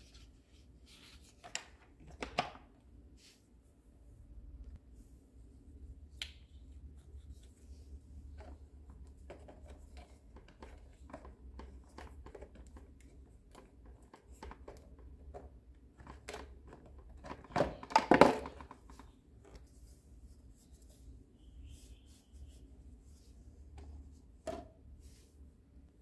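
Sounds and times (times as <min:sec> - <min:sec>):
plastic rustling and clattering: 0:09.3 - 0:19.7.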